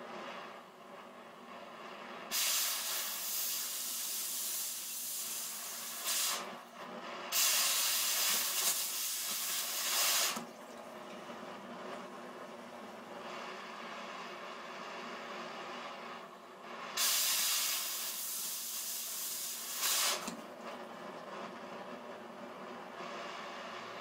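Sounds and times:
cutting torch hissing: 0:01.7 - 0:10.5, 0:13.1 - 0:20.5
loud oxygen jet hiss: 0:02.3 - 0:06.6, 0:07.3 - 0:10.4, 0:16.9 - 0:20.4.

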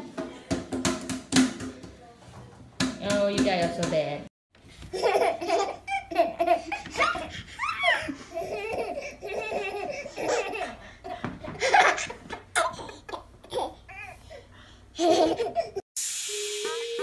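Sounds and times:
baby laughing: 0:04.9 - 0:14.2, 0:15.0 - 0:15.8.

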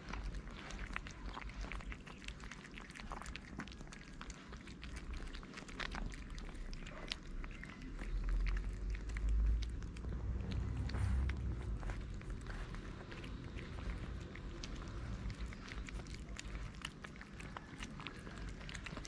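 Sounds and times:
cats crunching and chewing food: 0:00.0 - 0:19.0
low rumble: 0:04.9 - 0:19.0.

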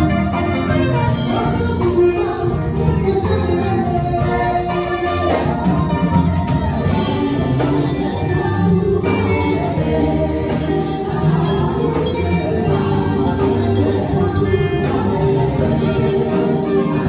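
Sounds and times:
drums: 0:00.0 - 0:17.0
group of singers: 0:00.0 - 0:17.0
keyboard: 0:00.0 - 0:17.0.

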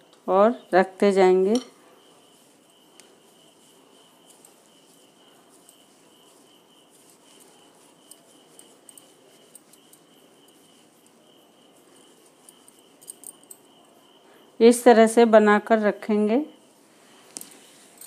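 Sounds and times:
hands patting soft mixture: 0:02.0 - 0:13.2.

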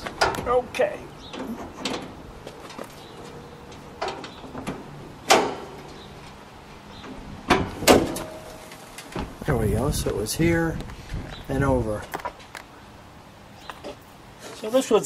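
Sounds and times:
metal latch clicks and clunks: 0:00.0 - 0:00.6, 0:01.2 - 0:02.9, 0:03.6 - 0:06.4, 0:07.0 - 0:09.4.

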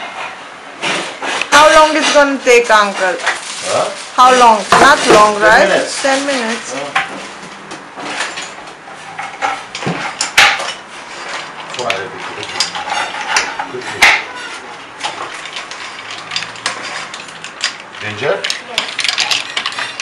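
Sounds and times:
spoon scraping and clattering in pot: 0:08.0 - 0:20.0.

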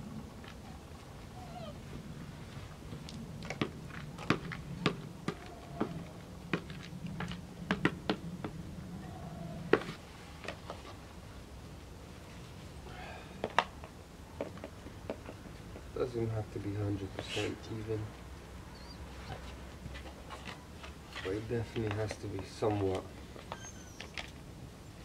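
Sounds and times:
puppies whining: 0:00.7 - 0:01.9, 0:05.4 - 0:06.2, 0:18.7 - 0:19.5, 0:23.5 - 0:24.4.

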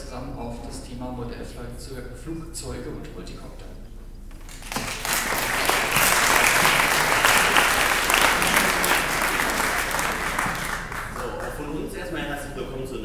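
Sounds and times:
audience applauding: 0:04.4 - 0:11.9.

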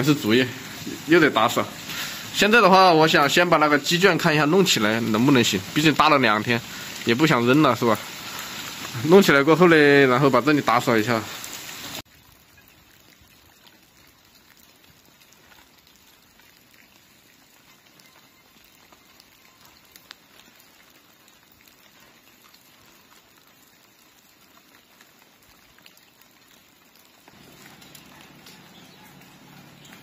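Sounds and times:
raindrops dripping on leaves: 0:00.0 - 0:30.0
small ticks: 0:13.5 - 0:30.0.

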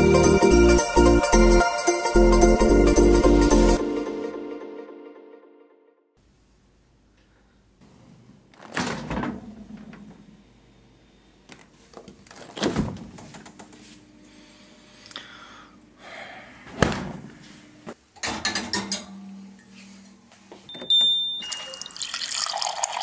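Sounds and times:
refrigerator door thuds: 0:16.7 - 0:17.2.

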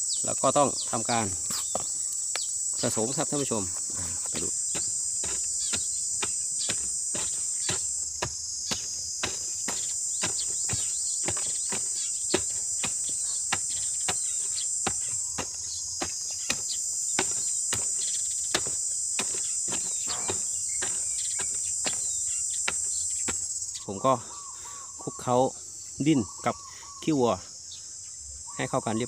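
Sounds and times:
insect chirring: 0:00.0 - 0:29.0
hoe chopping into soil: 0:03.8 - 0:23.6.

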